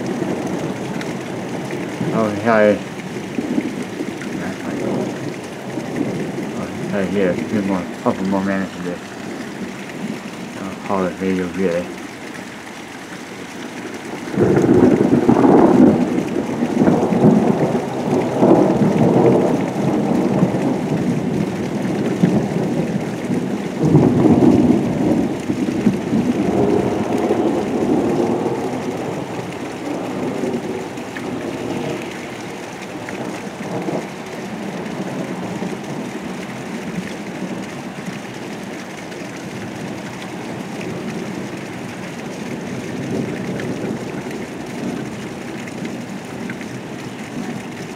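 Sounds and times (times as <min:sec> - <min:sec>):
steady rain: 0:00.0 - 0:47.9
rolling thunder: 0:14.1 - 0:37.7.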